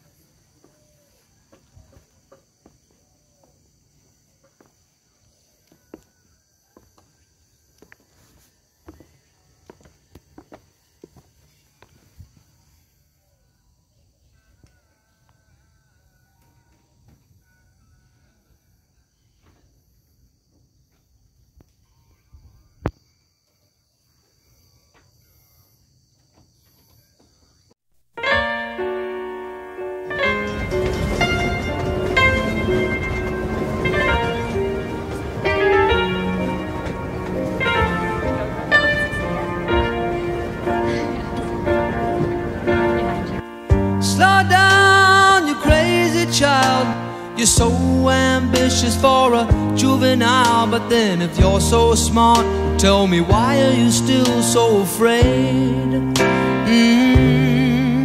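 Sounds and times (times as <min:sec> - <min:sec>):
insects chirping: 0:00.0 - 0:58.0
piano background music: 0:28.2 - 0:58.0.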